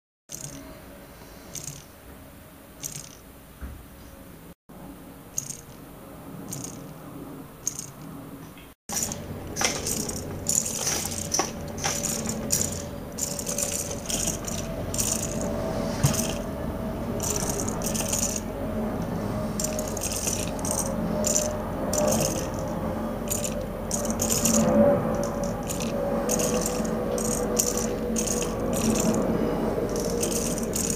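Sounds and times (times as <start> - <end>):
tin robots rattling and clicking: 0.3 - 0.7, 1.5 - 1.9, 2.8 - 3.2, 5.4 - 5.8, 6.4 - 6.9, 7.6 - 8.0, 8.9 - 16.5, 17.2 - 18.5, 19.6 - 29.3, 29.9 - 30.9
steady motor hum: 0.3 - 30.9.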